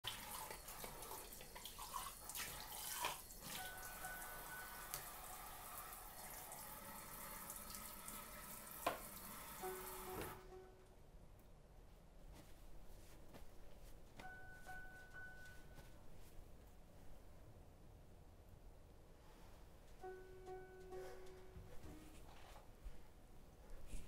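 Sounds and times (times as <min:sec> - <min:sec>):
tap water running into sink: 0:00.0 - 0:10.4.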